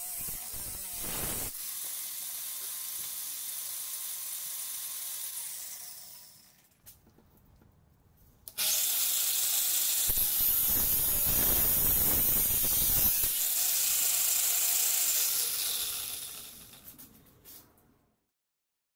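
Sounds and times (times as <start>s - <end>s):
disc grinding through steel tube: 0.0s - 1.6s, 10.1s - 16.9s
angle grinder running: 0.0s - 6.6s, 8.5s - 17.0s.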